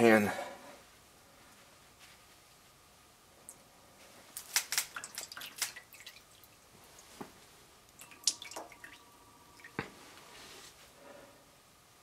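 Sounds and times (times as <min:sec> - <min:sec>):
oil dripping into pan: 0:04.6 - 0:06.7, 0:07.9 - 0:09.9.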